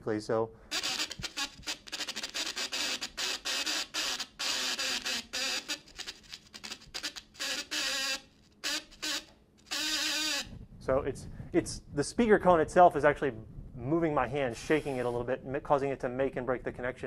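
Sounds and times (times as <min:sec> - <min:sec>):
loudspeaker buzzing in bursts: 0:00.7 - 0:10.5.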